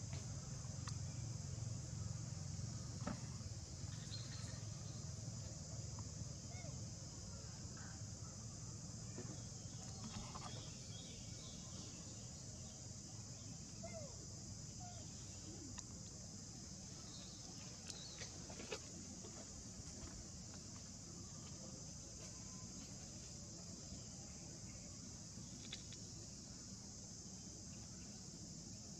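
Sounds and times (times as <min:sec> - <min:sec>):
insects trilling: 0:00.0 - 0:28.9.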